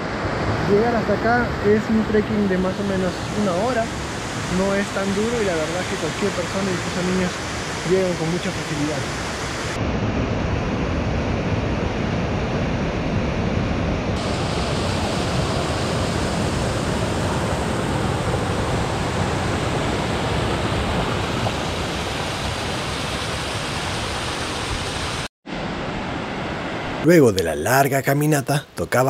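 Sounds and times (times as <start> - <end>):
waterfall and rocky stream rushing: 0.1 - 9.8, 14.2 - 25.3.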